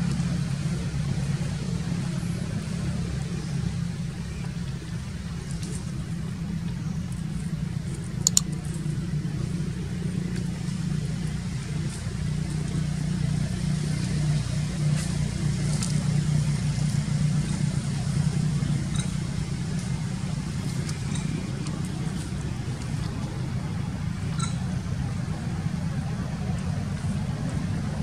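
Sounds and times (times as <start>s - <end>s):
low engine-like hum: 0.0s - 28.0s
faint ticks: 6.7s - 9.0s.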